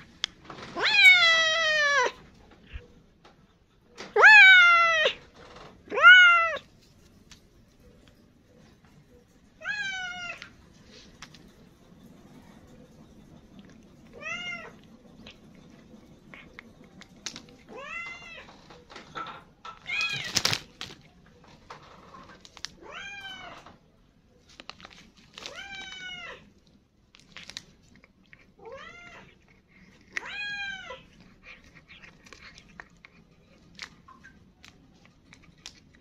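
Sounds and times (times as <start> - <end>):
cat meowing: 0.7 - 2.2, 4.1 - 5.2, 5.9 - 6.7, 9.6 - 10.5, 22.8 - 23.7, 28.6 - 29.4, 30.1 - 31.6.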